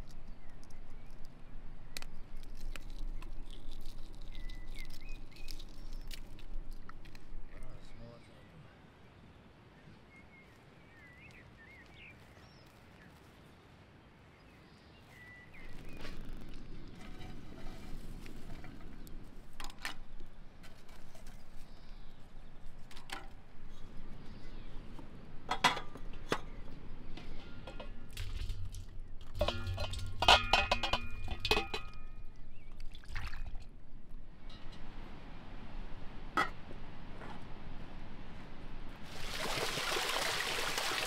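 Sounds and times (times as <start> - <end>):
tongs scraping through charcoal: 2.0 - 7.3, 15.6 - 22.2, 27.1 - 32.8
birds chirping: 7.5 - 17.7, 30.9 - 32.9.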